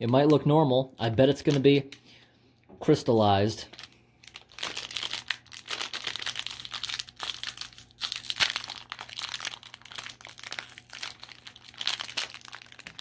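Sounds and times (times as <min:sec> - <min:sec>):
wrapper crinkling and tearing: 0:03.6 - 0:13.0.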